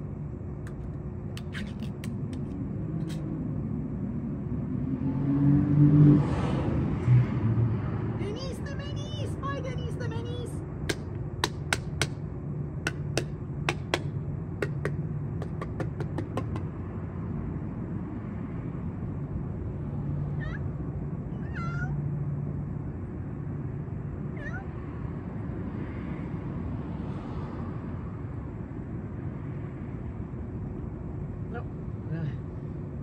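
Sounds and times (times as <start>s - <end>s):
cat meowing: 20.4s - 20.7s, 24.4s - 24.7s.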